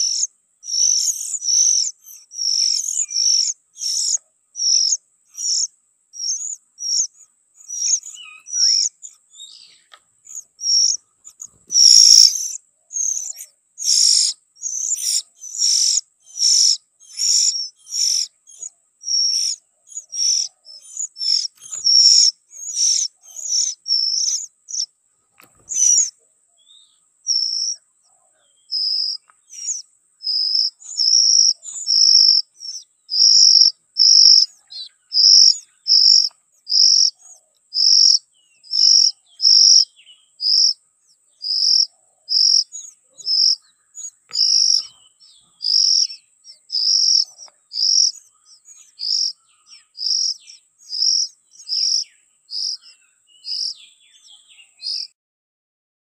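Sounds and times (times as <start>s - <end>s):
nestlings begging calls: 0.0s - 27.8s, 28.4s - 55.1s.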